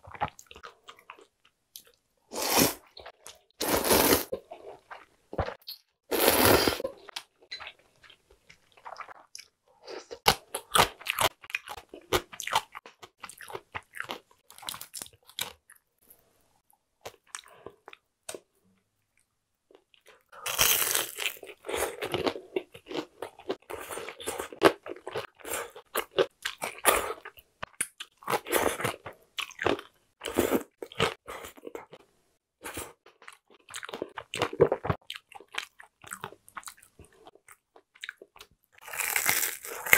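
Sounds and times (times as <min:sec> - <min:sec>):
slurping noodles: 0:02.3 - 0:02.8, 0:03.6 - 0:04.4, 0:06.1 - 0:06.9
crunching bite into fried food: 0:38.8 - 0:39.9.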